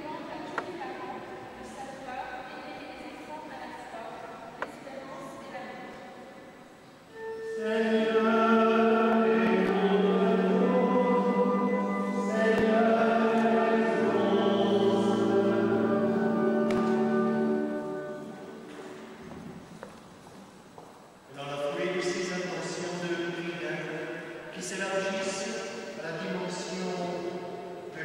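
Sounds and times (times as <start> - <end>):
voices singing liturgical refrain: 7.1 - 19.1.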